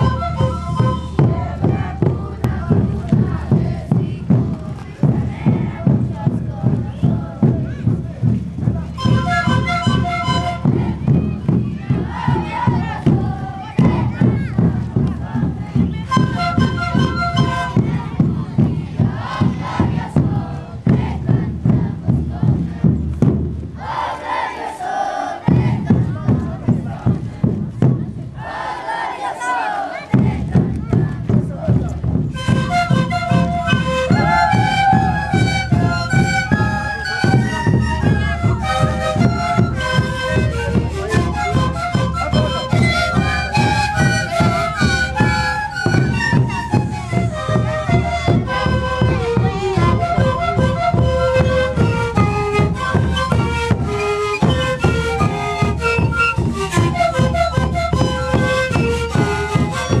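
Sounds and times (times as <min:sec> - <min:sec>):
panpipes playing breathy melody: 0:00.0 - 0:01.5, 0:09.0 - 0:10.8, 0:16.1 - 0:17.9, 0:32.4 - 1:00.0
bass drums beating: 0:00.0 - 0:23.9, 0:25.4 - 0:28.4, 0:30.1 - 1:00.0.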